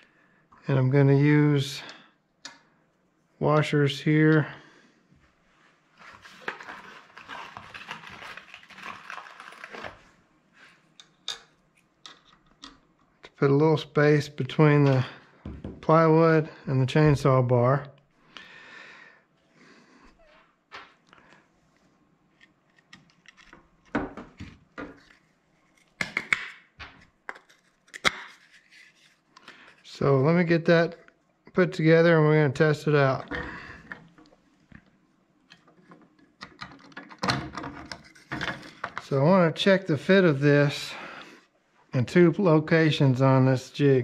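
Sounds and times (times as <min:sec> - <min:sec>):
clicks taps and knocks of parts: 0:35.5 - 0:39.0.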